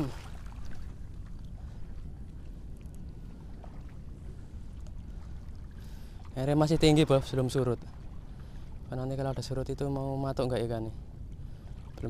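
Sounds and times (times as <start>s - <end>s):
seawater lapping: 0.0s - 12.0s
wind rumble on microphone: 0.0s - 12.0s
faint ticks: 2.3s - 3.4s, 4.7s - 5.6s.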